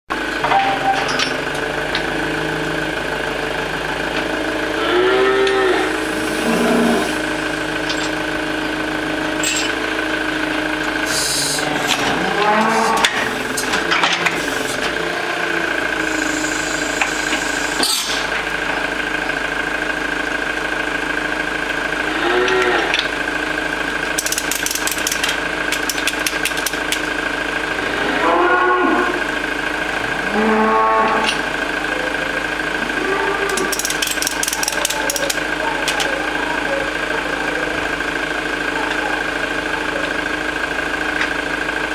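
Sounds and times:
hydraulic unit humming: 0.1 - 41.9
cow mooing: 4.6 - 7.3, 11.6 - 13.4, 15.0 - 15.8, 22.0 - 23.1, 27.7 - 31.5, 32.8 - 33.8
metallic clanks: 9.4 - 9.8.

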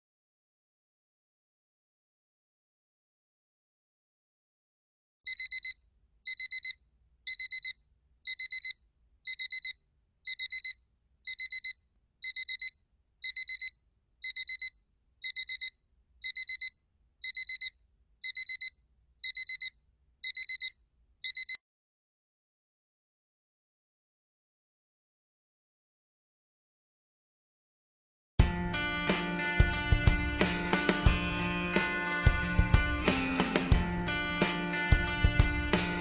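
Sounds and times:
alarm clock beeping: 5.3 - 21.6.

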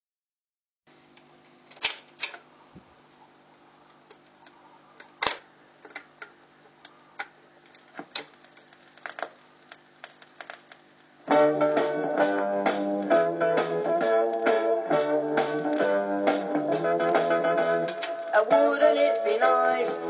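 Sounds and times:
record changer clicks and clunks: 1.4 - 2.5, 5.0 - 10.8, 17.1 - 19.4.

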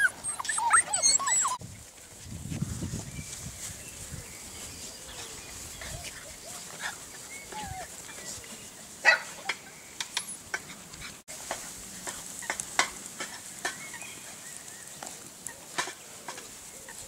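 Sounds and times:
puppies yipping and whining: 0.0 - 1.6, 5.5 - 8.4
puppy yelps: 0.0 - 1.6.

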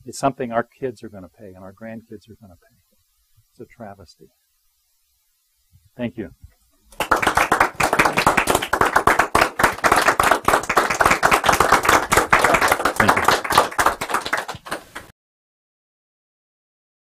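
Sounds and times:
audience applauding: 6.9 - 15.1.

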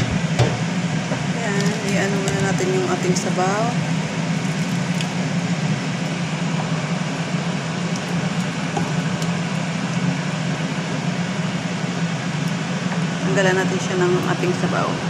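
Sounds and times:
steady low hum: 0.0 - 15.0
water draining into sink: 4.3 - 5.2.

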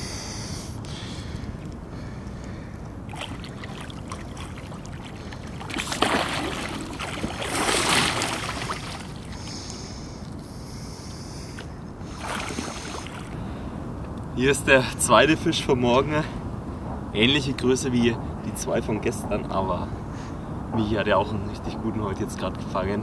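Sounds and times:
steady water noise: 0.8 - 14.0
fish thrashing and splashing: 3.1 - 9.8, 12.1 - 13.4.

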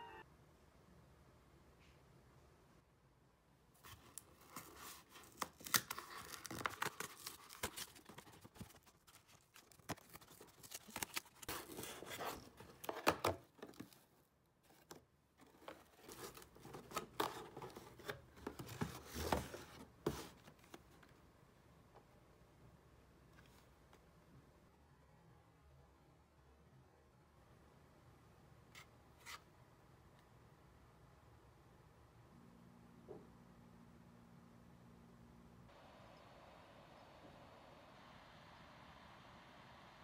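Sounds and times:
cardboard tearing and rustling: 3.9 - 13.9.

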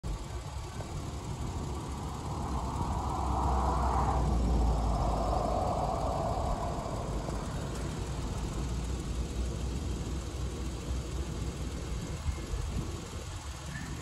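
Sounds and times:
vehicle driving past: 1.4 - 9.1.

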